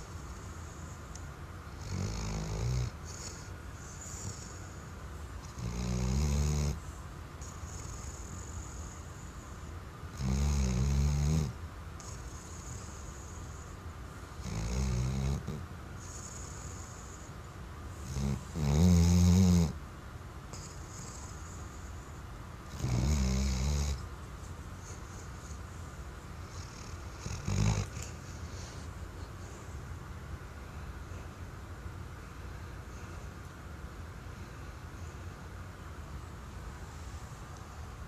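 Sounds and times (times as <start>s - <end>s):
dog snoring: 0.0s - 19.8s, 20.5s - 24.1s, 26.4s - 29.7s
faint breathy hiss: 0.0s - 19.8s, 20.4s - 38.0s.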